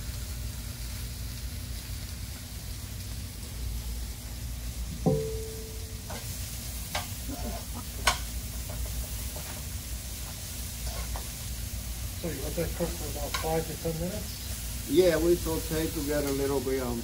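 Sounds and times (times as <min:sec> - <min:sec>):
vegetables sizzling in skillet: 0:00.0 - 0:17.0
metal tongs clicking on pan: 0:13.2 - 0:13.6.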